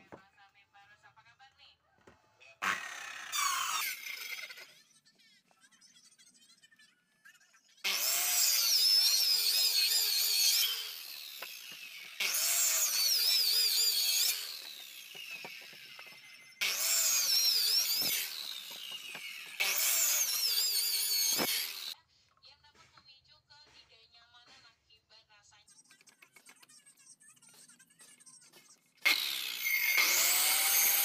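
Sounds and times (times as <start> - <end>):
circular saw cutting wood: 2.6 - 4.7, 7.8 - 22.0, 29.0 - 31.0.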